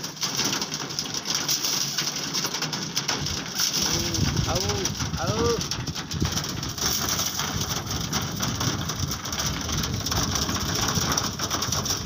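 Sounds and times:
pigeons pecking grain: 0:00.0 - 0:12.0
low rumble: 0:03.8 - 0:10.8.

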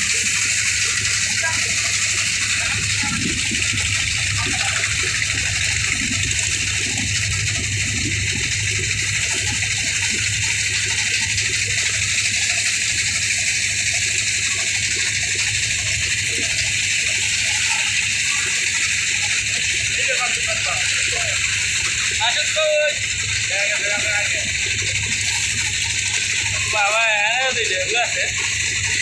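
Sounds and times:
motorboat engine drone: 0:00.0 - 0:29.0
water rushing along boat hull: 0:00.0 - 0:29.0.

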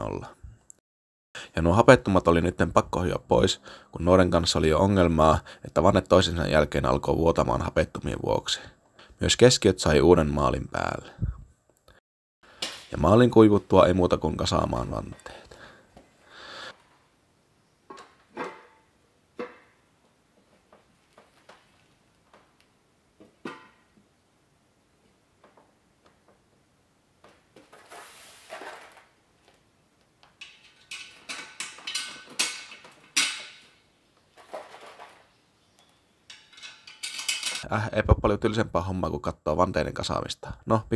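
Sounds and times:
metallic bolts clicking and rattling: 0:30.3 - 0:33.8, 0:36.2 - 0:37.7
metal wheel parts clinking: 0:30.4 - 0:33.8, 0:34.4 - 0:37.7.

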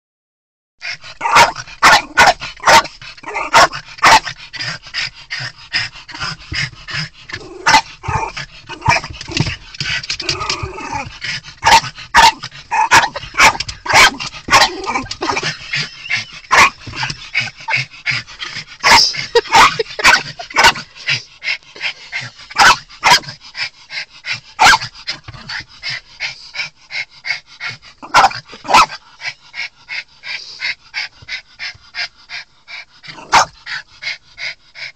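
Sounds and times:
small dog barking frantically: 0:01.2 - 0:04.4, 0:07.6 - 0:09.6, 0:10.4 - 0:17.8, 0:18.8 - 0:20.9, 0:22.5 - 0:23.4, 0:24.6 - 0:24.9, 0:28.0 - 0:29.0, 0:33.1 - 0:33.6.

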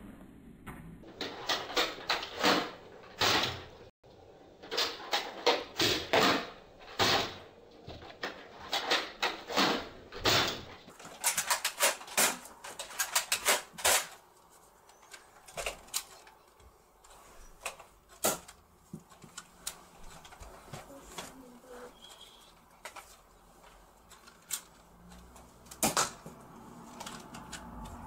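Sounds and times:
toy blaster plastic clacks: 0:10.4 - 0:14.2, 0:24.1 - 0:26.3.

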